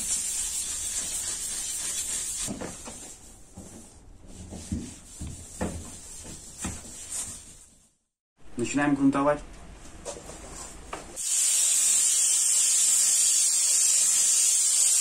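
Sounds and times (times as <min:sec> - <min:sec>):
sandpaper sanding: 0:00.0 - 0:02.5.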